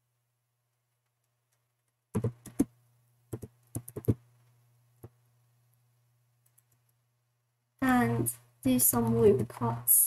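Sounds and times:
faint low hum: 0.0 - 10.0
computer keyboard keystrokes: 2.1 - 2.7, 3.3 - 4.2, 6.4 - 7.0.

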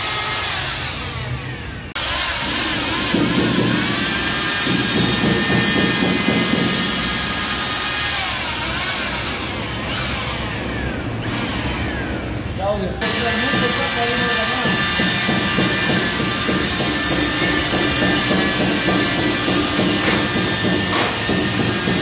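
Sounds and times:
paddle churning thick mix: 2.0 - 12.2
paddle mixer motor whining: 6.2 - 18.1.

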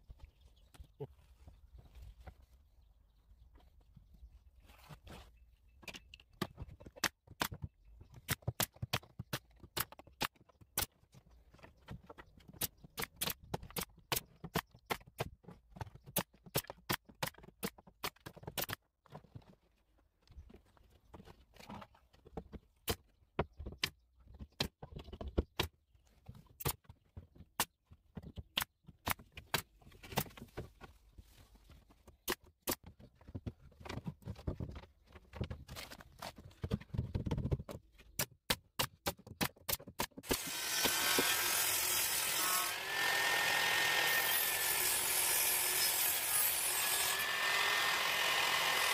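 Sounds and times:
nail gun firing into plywood: 38.5 - 41.5.

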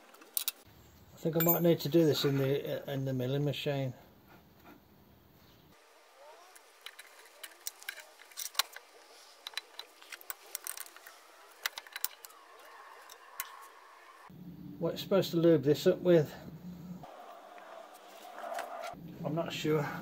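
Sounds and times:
metallic clinks and scrapes: 1.4 - 1.9, 6.8 - 13.8.

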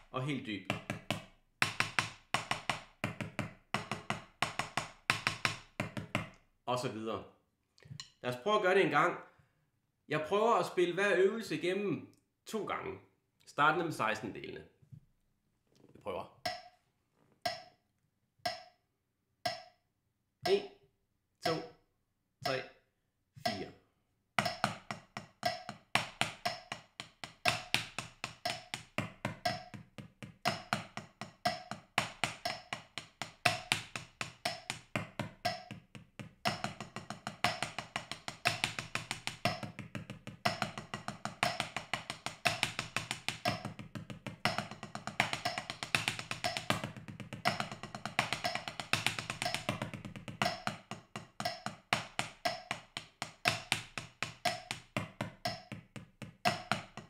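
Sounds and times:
drumsticks on practice pad: 16.5 - 16.7, 17.5 - 17.8, 18.5 - 18.8, 19.5 - 19.8, 21.4 - 21.8, 23.5 - 23.7, 24.4 - 35.8, 36.4 - 55.8
metronome clicking: 16.5 - 16.7, 17.5 - 17.7, 18.5 - 18.7, 19.5 - 19.8, 21.4 - 21.8, 22.4 - 22.7, 23.5 - 23.7, 24.4 - 35.8, 36.4 - 55.8, 56.5 - 57.0.

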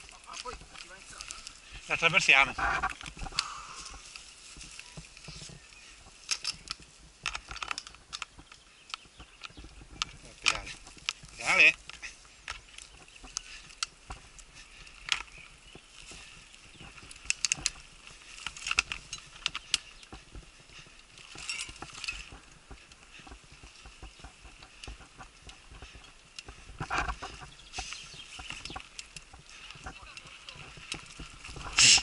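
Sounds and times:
bike clicking and knocking: 6.1 - 32.0
tyres hissing on dirt: 19.4 - 32.0.

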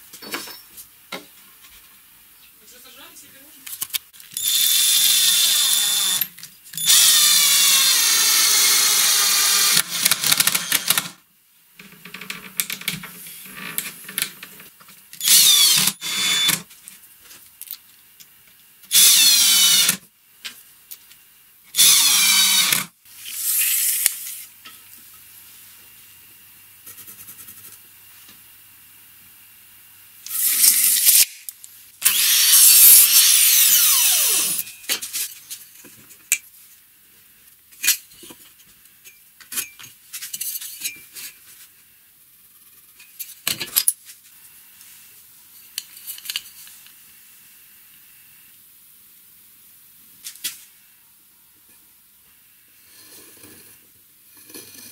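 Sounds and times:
mitre saw running: 4.4 - 11.0, 18.9 - 20.0, 21.8 - 22.8
cordless drill motor whine: 4.4 - 11.1, 15.2 - 16.6, 18.9 - 20.0, 21.8 - 22.8, 32.0 - 34.6.

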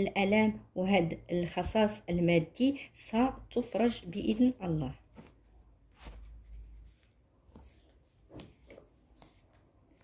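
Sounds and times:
playing cards sliding and tapping: 5.1 - 10.0.

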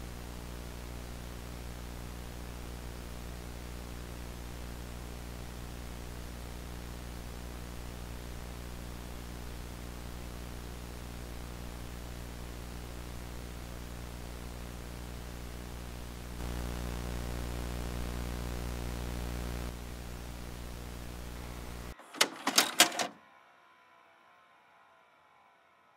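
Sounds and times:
buzzing mains hum: 0.0 - 22.0
tape playback hiss: 0.0 - 23.2
mechanical clicks and clunks: 22.0 - 23.2.

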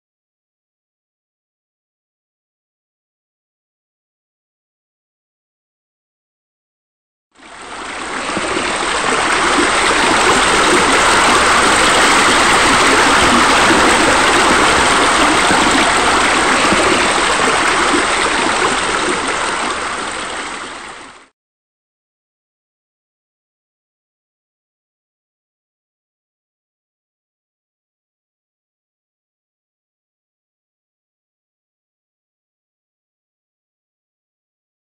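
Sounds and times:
rush of running water: 7.4 - 21.3.

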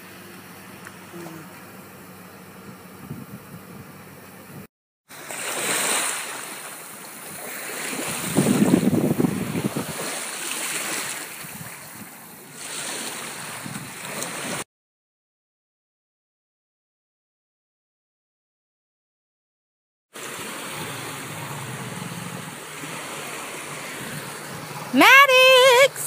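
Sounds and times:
wind gusting on microphone: 2.6 - 4.7, 7.2 - 14.6, 20.5 - 25.0.

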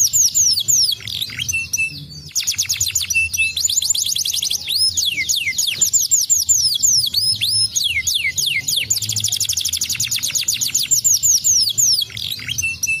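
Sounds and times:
canary singing: 0.0 - 13.0.

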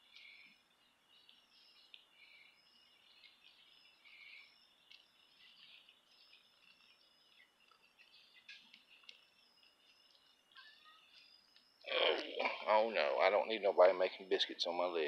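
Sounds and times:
birds chirping and trilling: 0.0 - 15.0.

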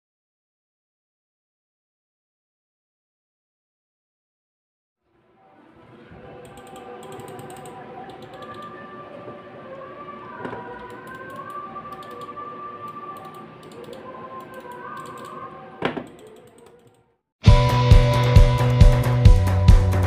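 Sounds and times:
mouse buttons clicking: 6.4 - 8.7, 10.5 - 17.0.

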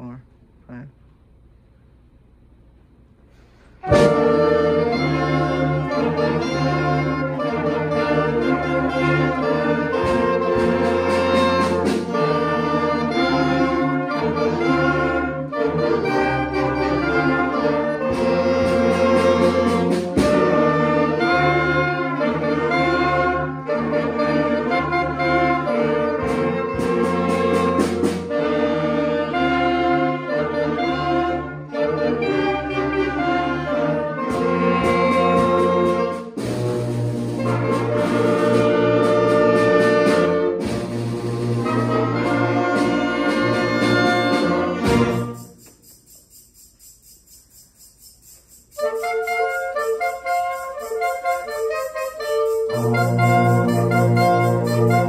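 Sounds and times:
concert band playing: 3.8 - 46.0, 48.4 - 55.0
drum and cymbal strokes: 34.3 - 55.0.

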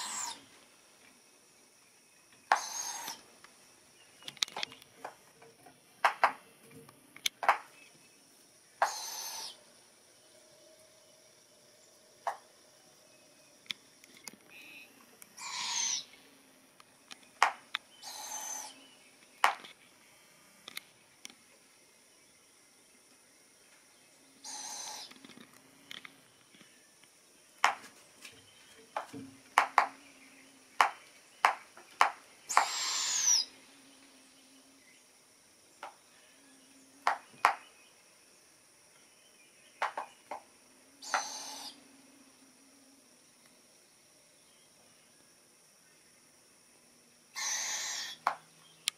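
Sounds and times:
owls giving raspy hissing calls: 0.0 - 0.5, 2.5 - 3.3, 8.8 - 9.6, 15.4 - 16.1, 18.0 - 18.8, 24.4 - 25.1, 32.5 - 33.6, 41.0 - 41.8, 47.4 - 48.3.

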